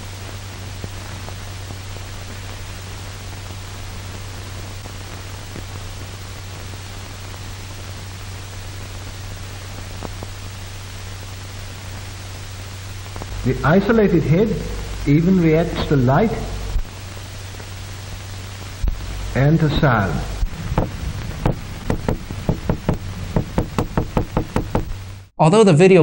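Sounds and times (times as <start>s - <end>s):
film soundtrack hiss: 0.0s - 25.9s
low hum: 12.9s - 25.3s.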